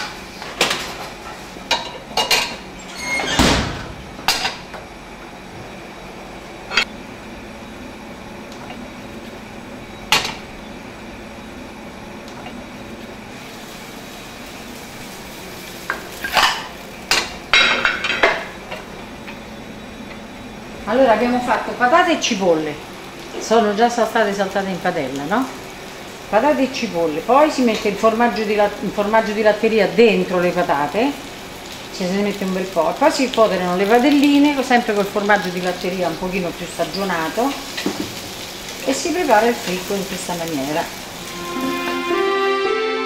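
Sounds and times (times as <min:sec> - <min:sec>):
steady background hiss: 0:00.0 - 0:43.0
metal pans clattering on iron grates: 0:15.9 - 0:18.6.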